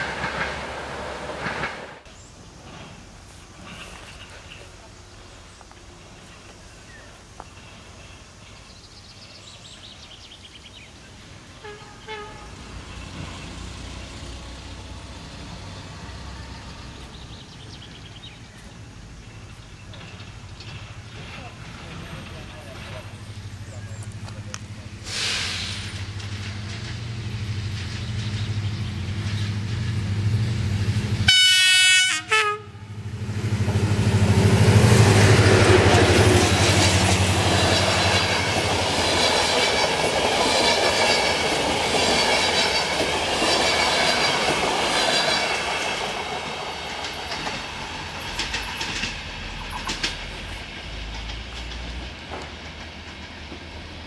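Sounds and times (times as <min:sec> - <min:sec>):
diesel locomotive engine running: 0:00.0 - 0:08.6, 0:10.9 - 0:54.0
train wheels clicking over rail joints: 0:00.0 - 0:08.9, 0:12.6 - 0:31.3, 0:33.1 - 0:54.0
locomotive horn: 0:11.6 - 0:12.8, 0:31.2 - 0:33.1.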